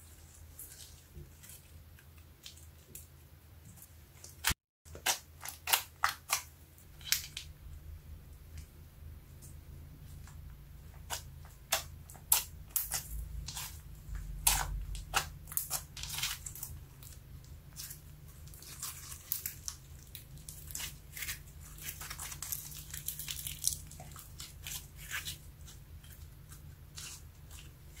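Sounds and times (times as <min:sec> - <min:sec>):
sticky slime crackling and popping: 0:04.3 - 0:07.5, 0:11.0 - 0:28.0.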